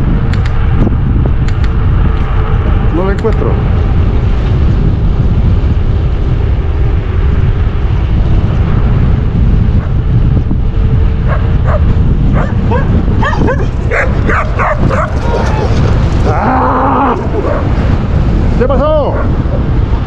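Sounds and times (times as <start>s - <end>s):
wind rushing over microphone: 0.0s - 20.0s
dogs barking: 11.2s - 16.0s, 17.2s - 17.8s, 19.1s - 19.6s.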